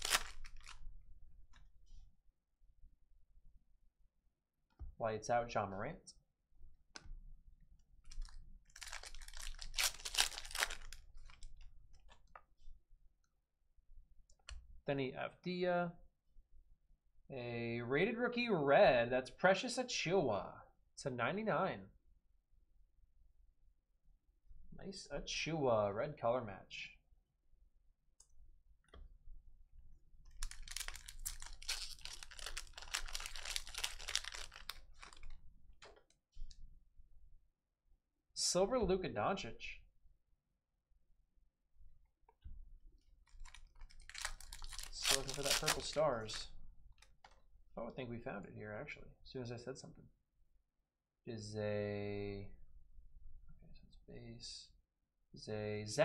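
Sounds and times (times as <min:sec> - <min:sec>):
card pack wrapper crinkling: 0:00.0 - 0:00.8, 0:08.1 - 0:12.2, 0:30.3 - 0:35.4, 0:43.3 - 0:46.4.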